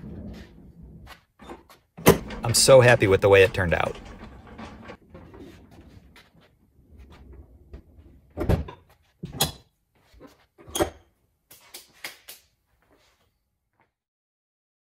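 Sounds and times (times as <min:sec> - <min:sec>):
cart rolling on concrete: 0:00.0 - 0:08.2.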